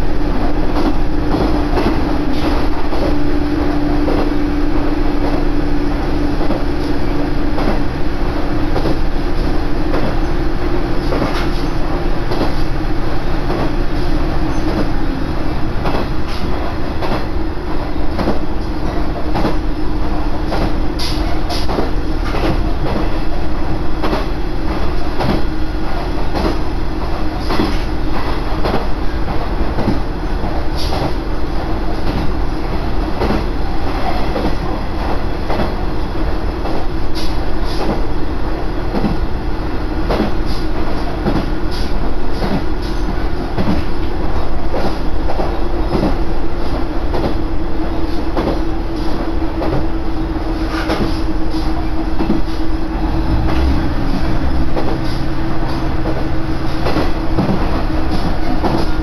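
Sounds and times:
train wheels rumbling: 0.0 - 59.0
diesel engine drone: 51.4 - 59.0.

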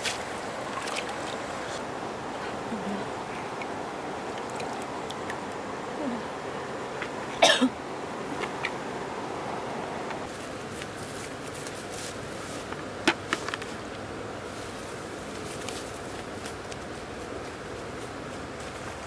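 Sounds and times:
rushing water: 0.0 - 10.3.

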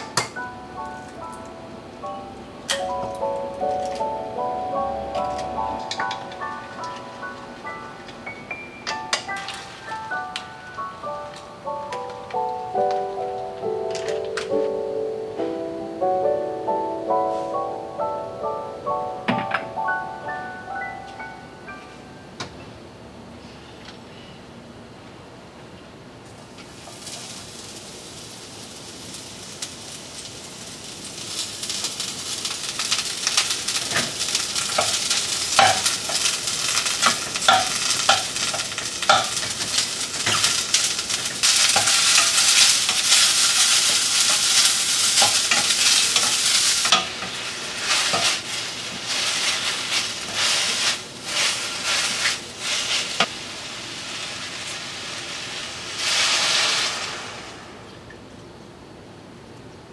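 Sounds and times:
mushrooms sizzling in oil: 26.3 - 57.9
wooden spatula scraping pan: 49.0 - 53.3.

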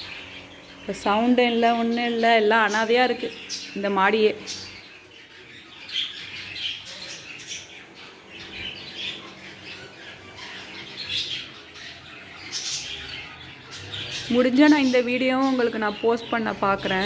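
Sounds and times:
budgerigars chirping: 0.0 - 17.0.

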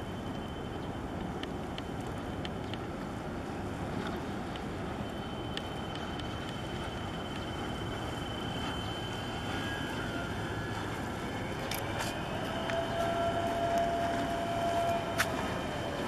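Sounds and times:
steady distant hum: 0.0 - 16.0
water: 0.0 - 16.0
wind: 0.0 - 16.0
faint clicks: 1.2 - 2.9, 4.0 - 4.7, 5.5 - 7.6
distant engine tone: 4.7 - 16.0.

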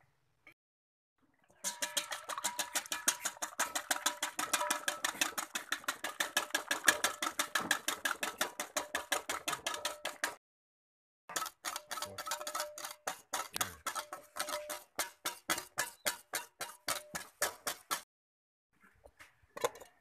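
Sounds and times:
whisk clicking against metal bowl: 1.6 - 10.4, 11.3 - 18.0.

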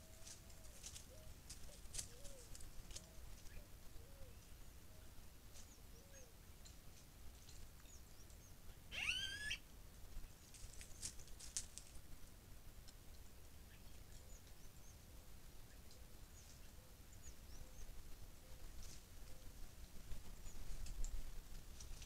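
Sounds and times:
dry leaves crackling underfoot: 0.0 - 3.7, 10.2 - 12.2, 18.6 - 22.0
rising bird call: 8.9 - 9.6.

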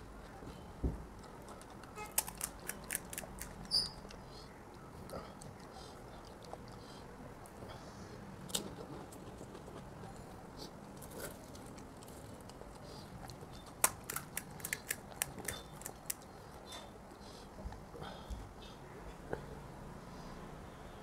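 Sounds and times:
crisp shells cracking: 2.1 - 3.6, 13.8 - 16.2.

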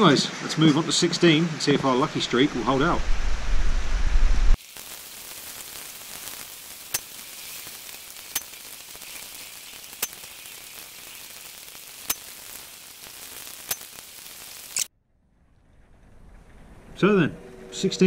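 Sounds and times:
heavy rain hiss: 0.0 - 14.9.

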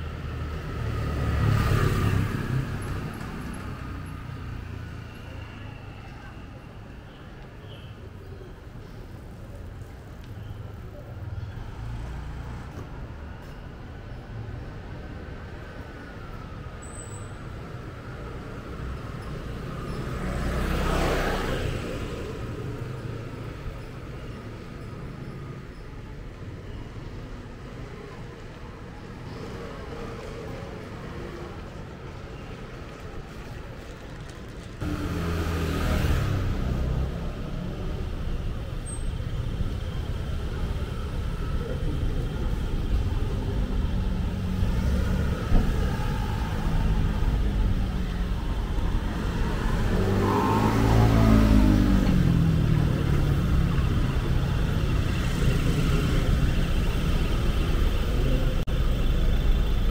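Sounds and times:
street traffic road noise: 0.0 - 59.9
vehicle passing close by: 34.8 - 37.4, 48.9 - 54.6.

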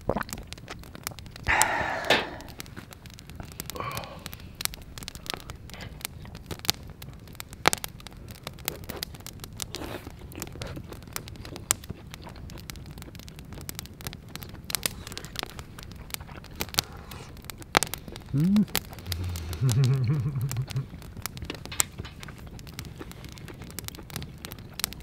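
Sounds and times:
campfire crackling and popping: 0.0 - 25.0.

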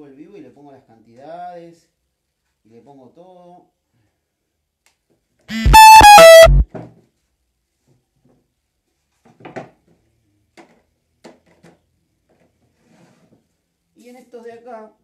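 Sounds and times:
three-note electronic chime: 5.5 - 6.6.

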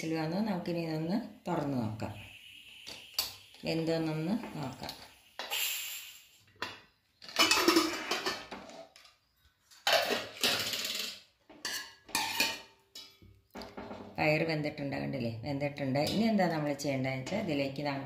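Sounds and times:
metal lid scraping and clanking: 7.3 - 9.0, 9.8 - 12.7.

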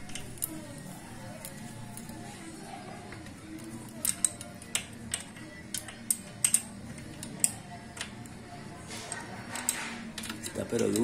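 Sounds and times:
wrench clicking on metal nut: 4.0 - 8.1.

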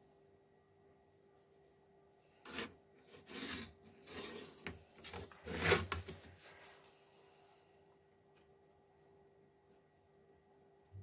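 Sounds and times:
ruler scraping across board: 2.4 - 6.2.

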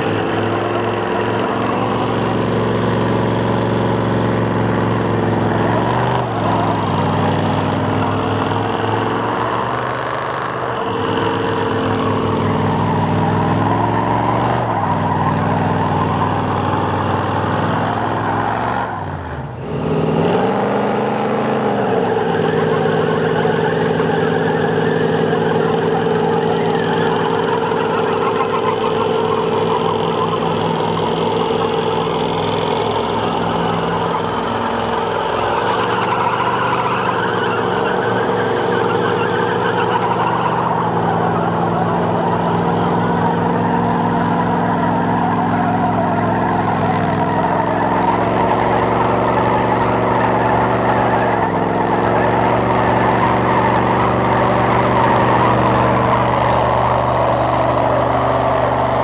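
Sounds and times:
truck engines revving high: 0.0 - 59.0
tyres spinning in dirt: 21.2 - 59.0.

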